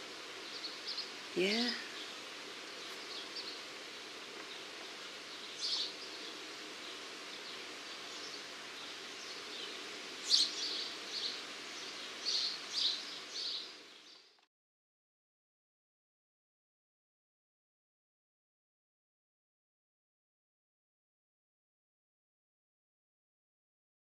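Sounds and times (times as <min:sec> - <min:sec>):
steady background hiss: 0:00.0 - 0:14.5.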